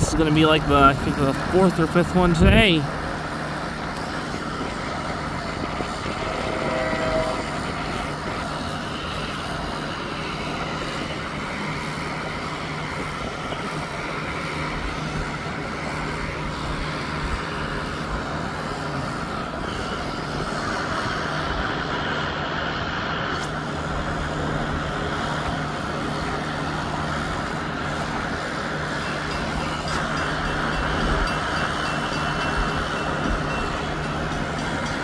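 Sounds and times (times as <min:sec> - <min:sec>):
low steady hum: 0:00.0 - 0:35.0
vehicle noise: 0:00.0 - 0:35.0.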